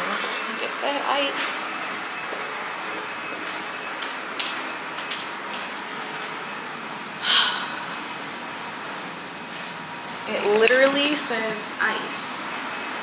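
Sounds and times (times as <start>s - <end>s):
ventilation hiss: 3.9s - 13.0s.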